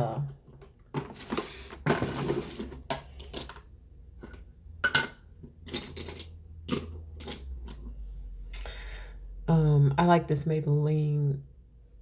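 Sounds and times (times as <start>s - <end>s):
makeup items clattering: 0.3s - 7.9s.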